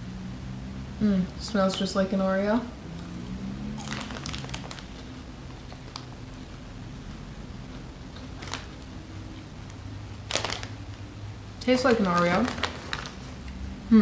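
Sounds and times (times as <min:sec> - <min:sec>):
faint low hum: 0:00.0 - 0:14.0
popcorn being chewed: 0:02.8 - 0:11.1, 0:11.7 - 0:13.6
plastic snack bag crinkling: 0:03.6 - 0:06.2, 0:07.7 - 0:09.0, 0:10.2 - 0:10.9, 0:11.6 - 0:13.6.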